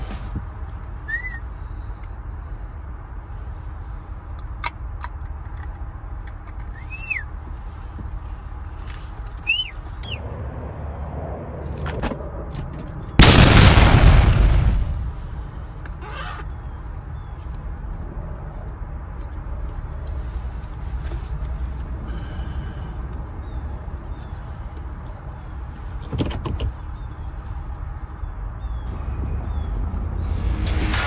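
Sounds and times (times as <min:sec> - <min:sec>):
steady low rumble: 0:10.0 - 0:15.9, 0:27.0 - 0:31.0.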